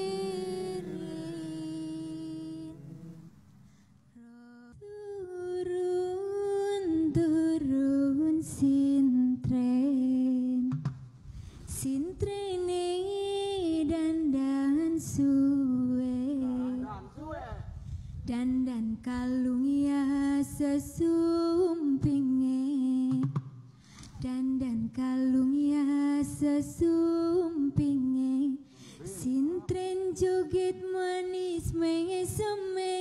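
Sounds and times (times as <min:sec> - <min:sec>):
person singing long notes: 0:00.0 - 0:03.3.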